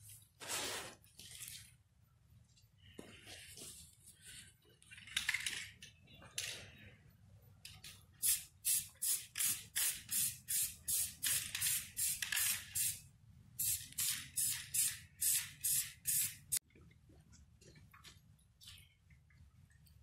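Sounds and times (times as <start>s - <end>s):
spray paint can hissing: 8.2s - 13.0s, 13.6s - 16.6s.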